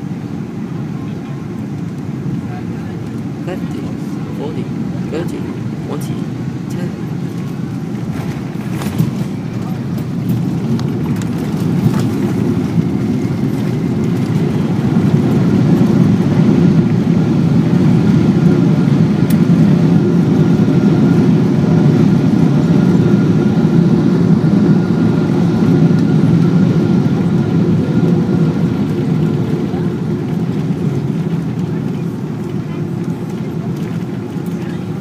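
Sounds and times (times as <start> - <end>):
aircraft cabin roar: 0.0 - 35.0.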